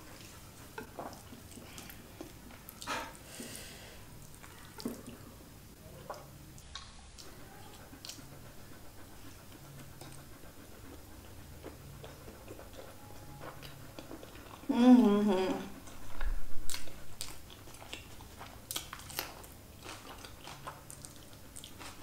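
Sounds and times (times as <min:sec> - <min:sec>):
wet eating and chewing: 0:00.0 - 0:03.4, 0:04.1 - 0:22.0
soft mouth clicks and smacks: 0:06.0 - 0:07.4.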